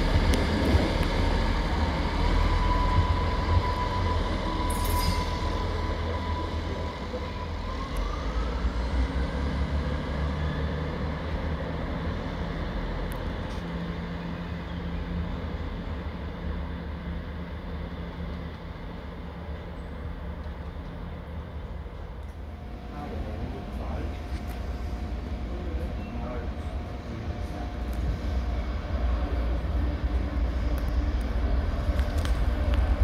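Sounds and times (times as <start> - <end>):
rising whine: 0.0 - 14.1
diesel train rumble: 0.0 - 33.0.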